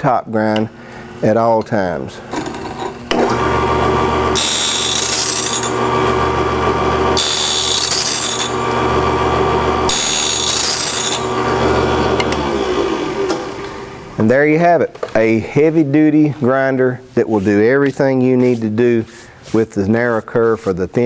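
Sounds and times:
machine motor humming: 3.1s - 14.2s
grinding wheel hissing on metal: 3.3s - 12.4s.

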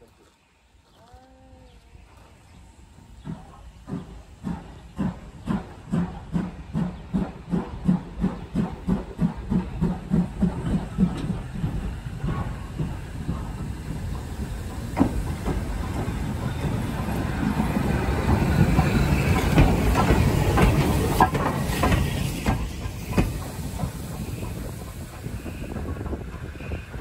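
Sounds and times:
steam hiss: 2.7s - 27.0s.

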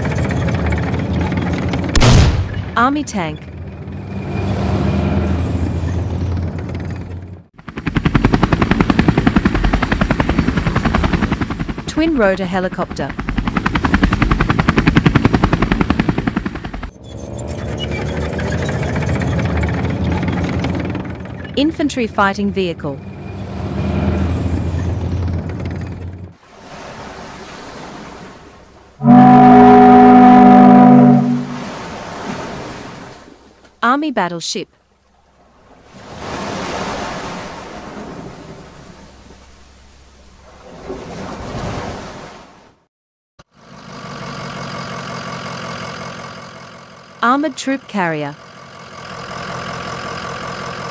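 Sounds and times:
helicopter rotor chopping: 0.0s - 26.4s
tracked vehicle engine revving: 16.1s - 21.5s, 29.0s - 31.8s
sea waves washing: 26.4s - 33.6s, 35.1s - 42.8s.

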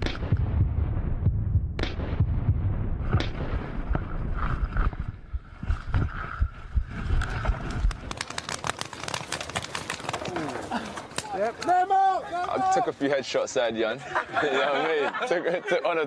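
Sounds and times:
heavy low rumble: 0.0s - 8.0s
paintball markers firing: 7.2s - 11.7s.

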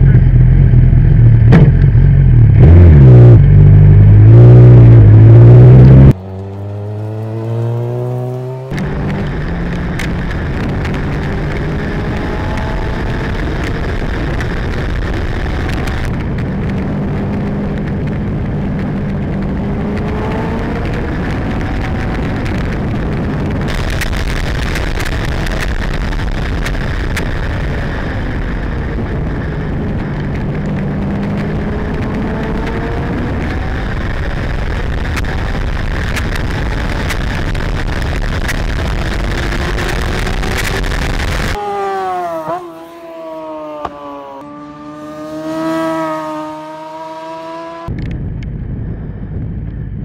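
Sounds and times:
engine accelerating: 0.0s - 48.8s
wind noise on microphone: 7.9s - 41.6s, 44.6s - 50.0s.

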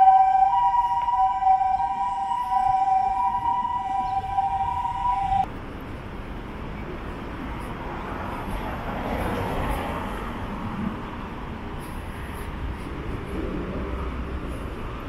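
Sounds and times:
two-tone electronic warning tone: 0.0s - 5.5s
street traffic: 0.0s - 15.0s.

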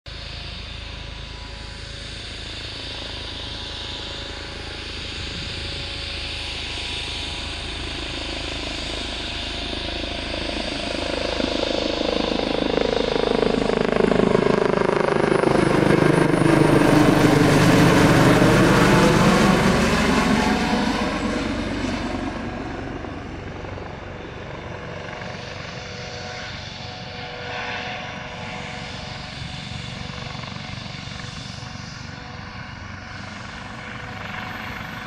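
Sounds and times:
helicopter rotor and turbine: 0.1s - 35.0s.

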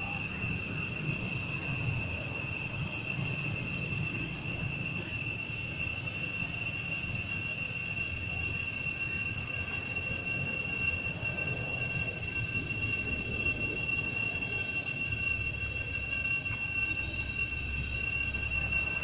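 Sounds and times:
high-pitched insect drone: 0.0s - 19.0s.

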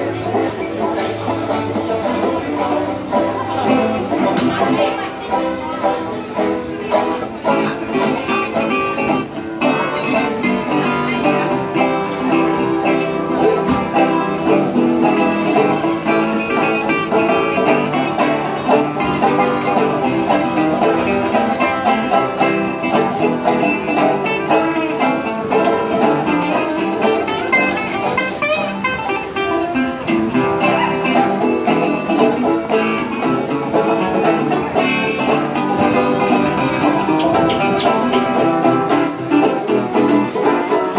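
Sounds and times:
banjos and guitars playing: 0.0s - 40.9s.

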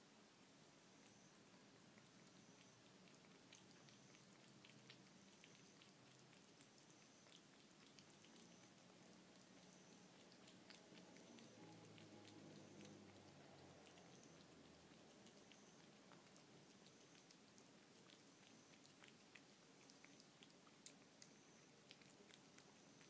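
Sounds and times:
cat lapping and chewing: 0.4s - 23.0s.

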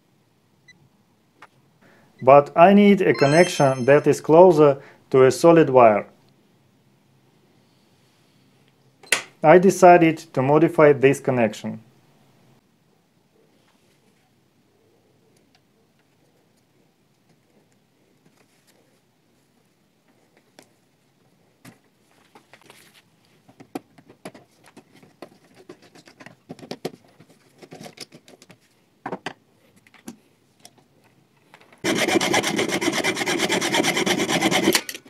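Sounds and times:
loud steady rasping noise: 31.8s - 34.8s.

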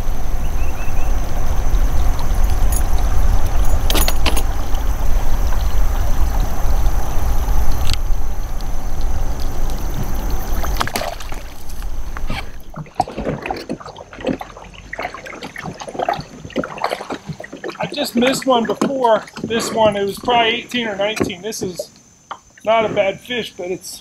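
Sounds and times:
low rumble: 0.0s - 13.0s
water sloshing and trickling: 0.0s - 23.3s
small water splashes: 9.7s - 22.8s.

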